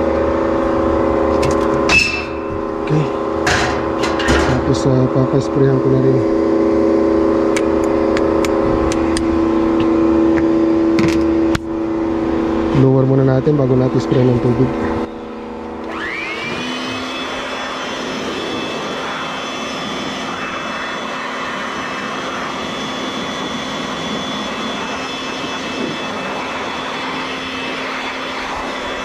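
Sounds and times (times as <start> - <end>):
air blower whining: 0.0 - 29.0
rushing air: 14.7 - 29.0.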